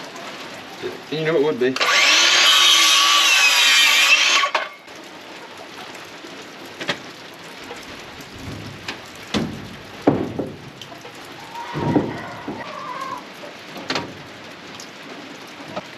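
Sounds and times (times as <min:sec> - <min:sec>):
steady rain: 0:00.0 - 0:02.4, 0:03.4 - 0:15.9
circular saw cutting board: 0:01.8 - 0:04.8
sharp wooden knocks: 0:08.4 - 0:10.9, 0:11.8 - 0:12.6.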